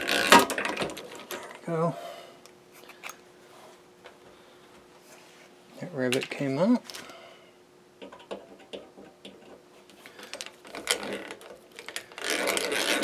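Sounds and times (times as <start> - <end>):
hand-cranked drill gear rattle: 10.3 - 13.0.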